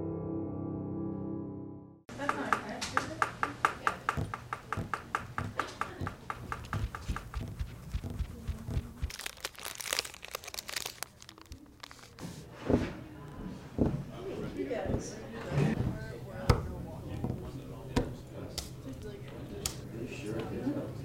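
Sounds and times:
pencil tapping on notebook: 2.2s - 9.1s
snack wrapper crinkling and tearing: 9.0s - 12.2s.

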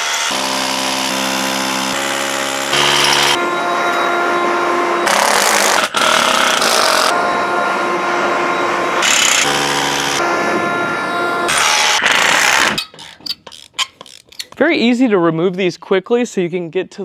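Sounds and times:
leaf blower running: 0.0s - 12.5s.

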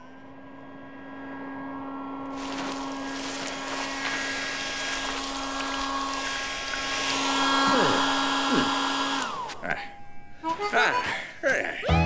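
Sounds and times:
hair dryer blowing: 2.3s - 9.6s.

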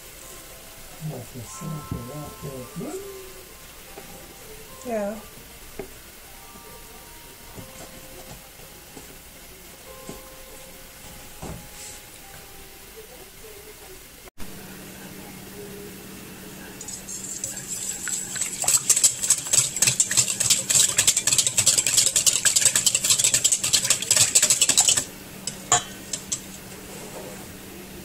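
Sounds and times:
whisk clattering in metal bowl: 16.8s - 26.6s
whisk tapping on bowl: 17.2s - 26.6s.

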